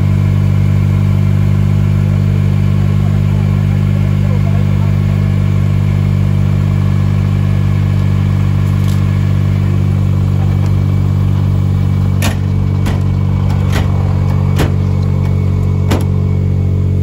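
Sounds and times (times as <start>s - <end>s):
vehicle engine idling: 0.0s - 17.0s
sharp knocks: 12.2s - 16.2s.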